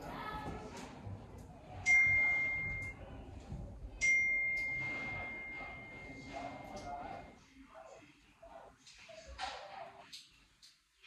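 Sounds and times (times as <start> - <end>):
bright high-pitched dings: 4.0 - 7.0.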